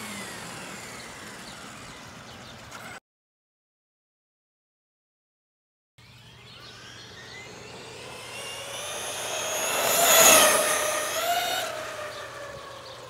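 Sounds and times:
rc truck motor whine: 0.0 - 3.0, 6.0 - 13.0.

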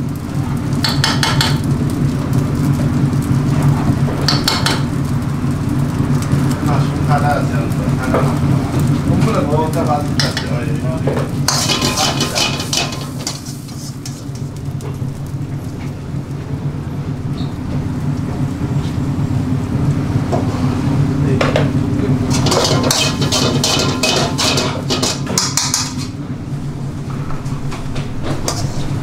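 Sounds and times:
sizzling: 0.0 - 27.6, 28.2 - 29.0
steady low hum: 0.0 - 29.0
metal spoon scraping a wok: 11.5 - 14.4, 22.3 - 26.2, 28.5 - 29.0.

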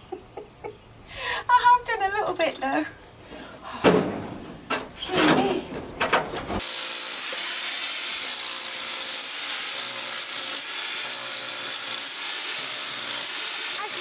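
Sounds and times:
demolition hammer chipping stone: 6.6 - 14.0.

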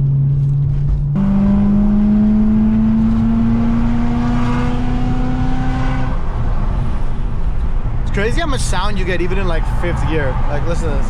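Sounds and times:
car engine revving from inside cabin: 1.2 - 6.2.

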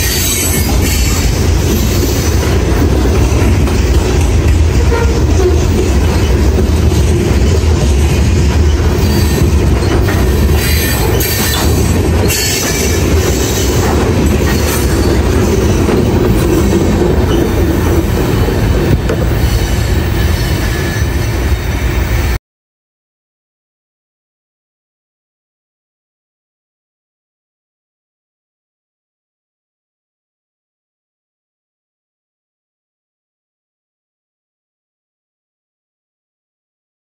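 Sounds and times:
high wheel squeal: 0.0 - 2.4, 8.4 - 18.6, 19.2 - 22.1
train wheels rumbling on rail: 0.0 - 22.4.

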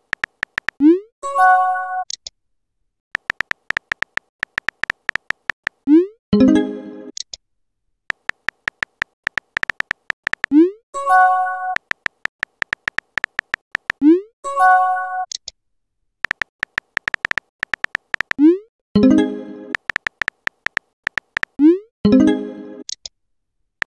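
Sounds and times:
keyboard tap clicks: 0.0 - 0.8, 3.2 - 5.8, 8.1 - 10.6, 11.8 - 14.0, 16.2 - 18.4, 19.7 - 21.6.

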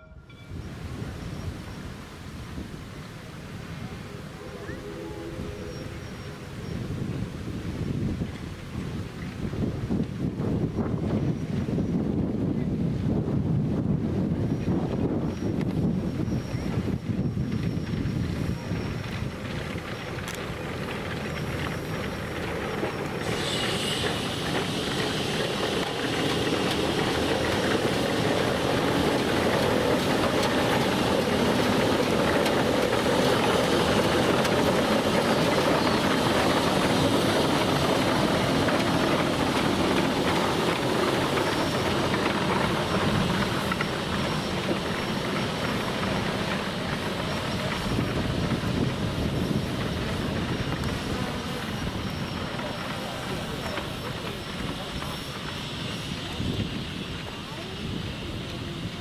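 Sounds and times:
steam locomotive exhaust rumble: 0.0 - 59.0
steam hissing: 14.6 - 59.0.

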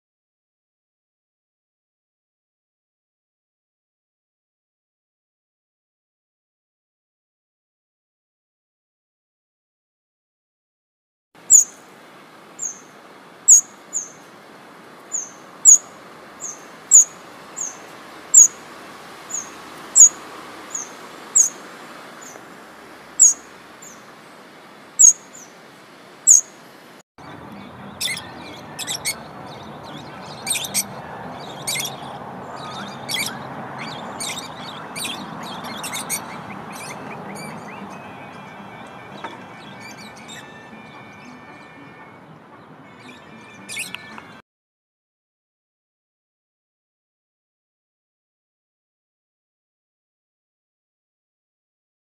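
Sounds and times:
small birds chirping: 11.4 - 44.4.

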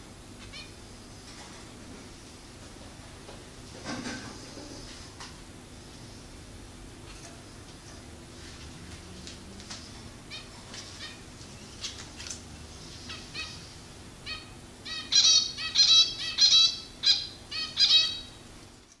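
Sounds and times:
finches chirping: 12.8 - 18.4.

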